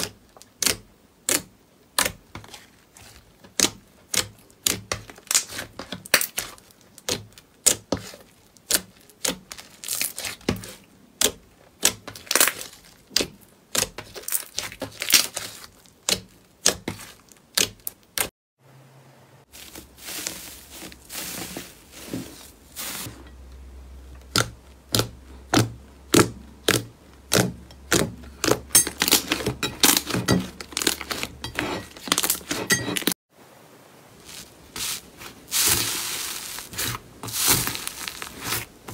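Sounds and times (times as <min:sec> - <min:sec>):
slime squishing with clicking pops: 0:00.0 - 0:02.6, 0:03.4 - 0:18.3, 0:24.0 - 0:29.4
foil crackling and crinkling: 0:02.3 - 0:10.9, 0:12.1 - 0:18.2, 0:19.5 - 0:23.3, 0:29.0 - 0:33.2, 0:34.1 - 0:38.9.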